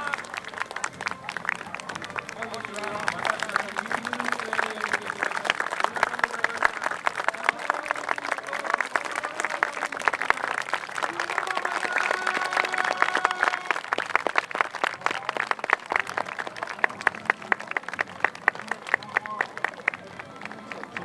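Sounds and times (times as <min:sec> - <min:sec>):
crowd clapping: 0:00.0 - 0:21.0.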